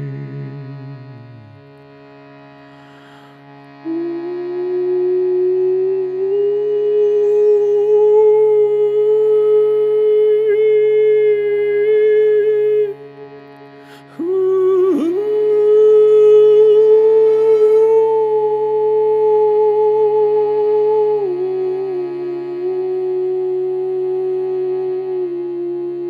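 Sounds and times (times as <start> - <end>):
shruti box drone: 0.0 - 26.0
overtone singing: 3.8 - 13.2, 13.9 - 25.3.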